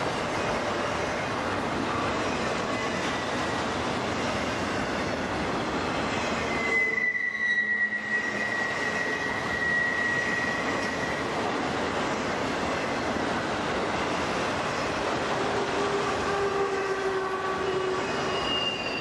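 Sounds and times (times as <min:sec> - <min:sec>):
freight train rolling past: 0:00.0 - 0:19.0
train wheels squealing: 0:06.2 - 0:11.5, 0:16.3 - 0:19.0.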